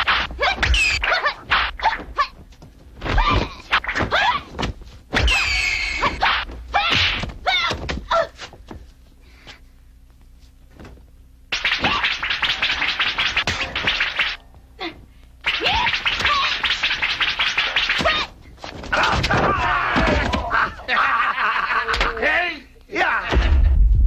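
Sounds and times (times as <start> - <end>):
punches and thuds: 0.0 - 5.5, 6.3 - 8.8, 17.8 - 20.8, 23.3 - 24.0
shouted cries: 18.9 - 23.3.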